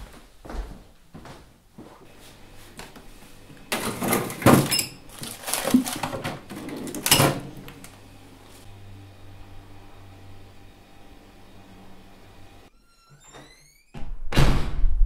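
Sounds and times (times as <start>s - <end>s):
plastic freezer drawer scraping: 3.7s - 7.8s
frozen packets rustling: 4.2s - 7.1s.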